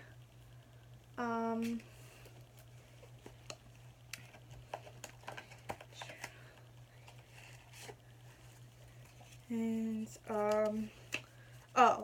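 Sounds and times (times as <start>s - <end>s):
low steady hum: 0.0s - 12.0s
plastic cards clicking and rustling: 2.5s - 8.0s.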